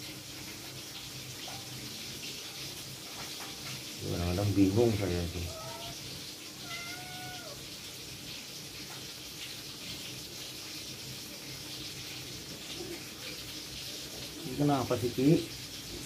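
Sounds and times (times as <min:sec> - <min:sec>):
cat meowing: 0:05.4 - 0:06.0, 0:06.6 - 0:07.6.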